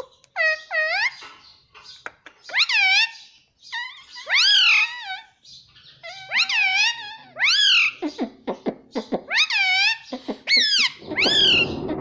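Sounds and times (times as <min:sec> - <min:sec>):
parrot calling: 0:02.5 - 0:05.4, 0:06.0 - 0:08.4, 0:09.0 - 0:11.9.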